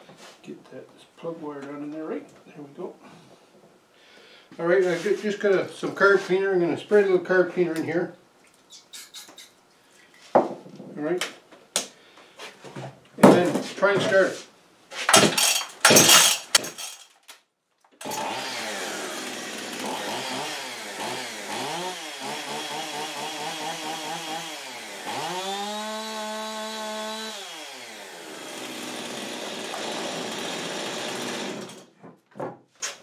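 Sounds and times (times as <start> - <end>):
chainsaw revving: 18.0 - 31.9.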